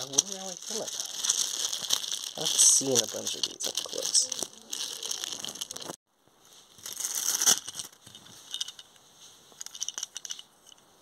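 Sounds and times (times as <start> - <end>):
plastic wrapping crinkling: 0.0 - 6.0, 6.6 - 8.8.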